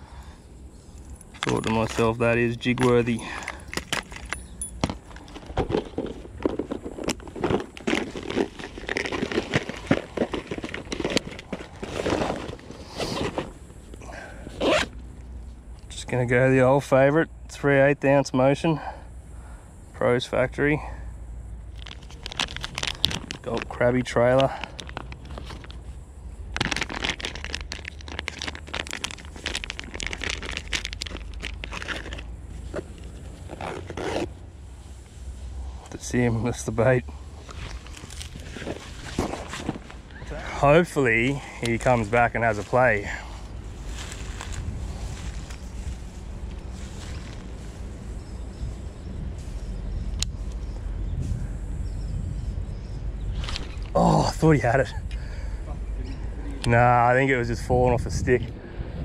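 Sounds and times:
plastic packet crinkling: 1.4 - 13.6, 21.7 - 25.8, 26.5 - 34.3, 37.5 - 40.0
fabric bag rustling: 5.0 - 13.8, 37.4 - 40.4.

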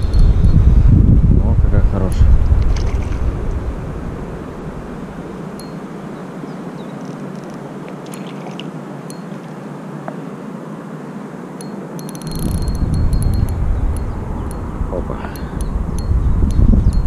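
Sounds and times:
wind buffeting microphone: 0.0 - 7.8, 11.8 - 17.0
light breeze hiss: 0.0 - 17.0.

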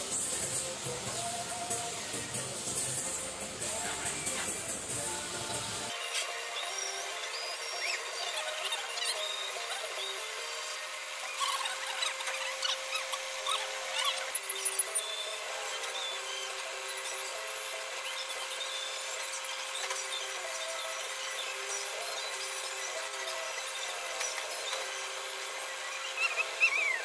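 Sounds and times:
grinding wheel squealing on metal: 6.5 - 27.0.

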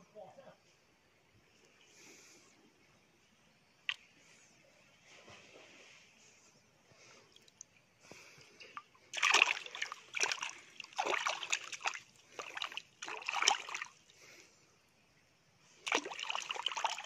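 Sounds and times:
rock splashing in shallow water: 9.1 - 14.0, 15.9 - 17.0.

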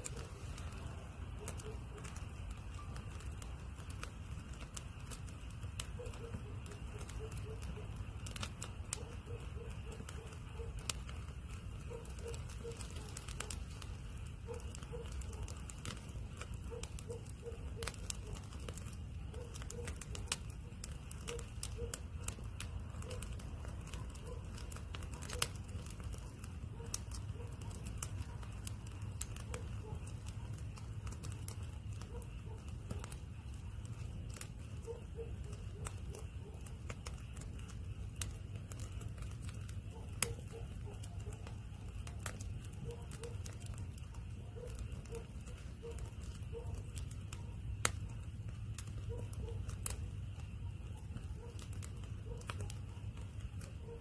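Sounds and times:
low rush of flame: 0.0 - 40.3
wood fire crackling and popping: 0.0 - 54.0.

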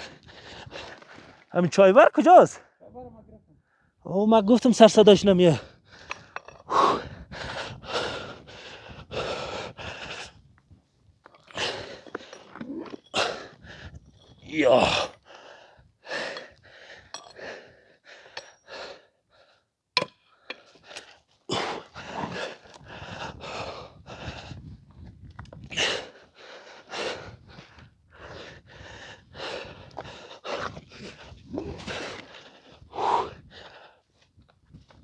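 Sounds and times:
person panting heavily: 0.0 - 1.3, 5.5 - 10.5, 11.4 - 14.2, 14.8 - 19.7, 20.4 - 24.8, 25.7 - 34.2.

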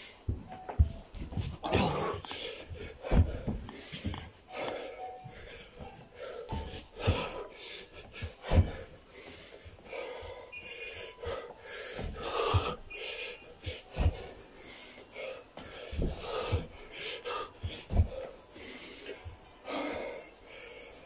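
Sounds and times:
man breathing hard and wheezing: 0.0 - 21.0
body thumping on carpeted floor: 0.2 - 4.4, 5.2 - 9.8, 11.2 - 14.6, 15.5 - 18.4.

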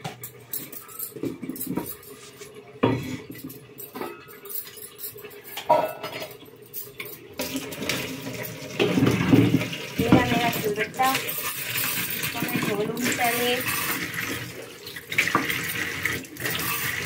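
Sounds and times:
metal utensils clattering: 0.0 - 17.0.

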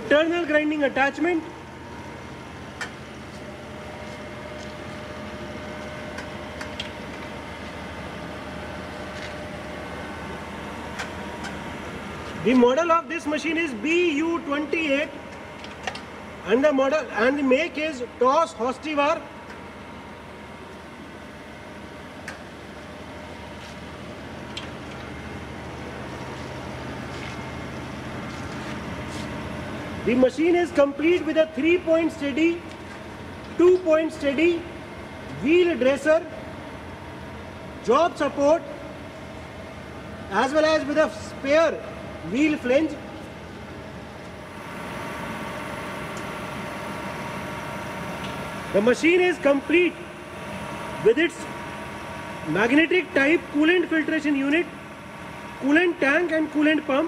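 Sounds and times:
grinder machine hum: 0.0 - 57.0
grinder humming with whine: 39.8 - 57.0.

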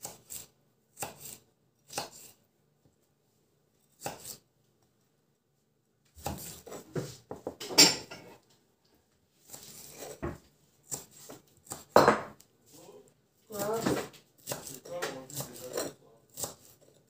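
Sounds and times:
knife slicing cabbage on wooden board: 0.0 - 2.4, 3.9 - 4.4, 6.2 - 7.3, 9.4 - 12.0, 13.5 - 17.0.

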